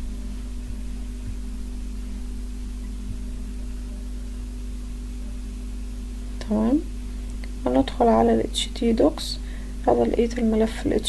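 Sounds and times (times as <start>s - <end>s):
faint low thumps: 0.0s - 8.4s
electrical hum with hiss: 0.0s - 11.0s.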